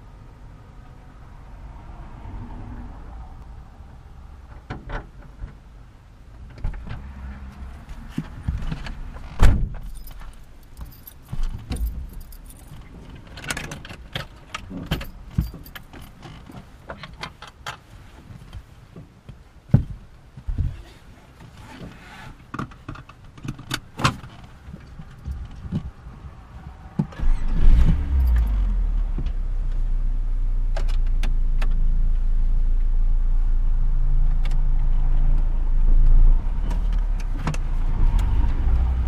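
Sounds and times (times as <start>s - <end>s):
thump inside car: 8.1s - 10.0s
keys jangling: 9.8s - 12.9s.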